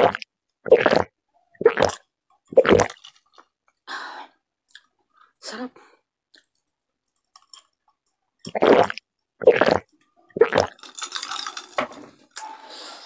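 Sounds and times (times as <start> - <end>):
person gulping a drink: 0.0 - 3.5, 7.4 - 11.5.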